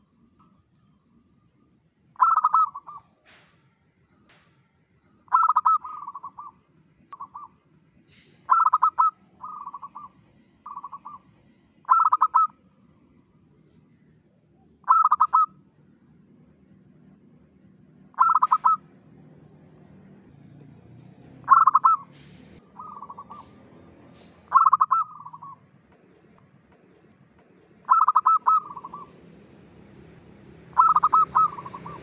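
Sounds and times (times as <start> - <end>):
dove cooing: 2.2 - 3.2, 5.3 - 6.6, 7.2 - 12.5, 14.8 - 15.6, 18.2 - 19.9, 21.4 - 25.6, 27.8 - 29.2, 30.7 - 32.0.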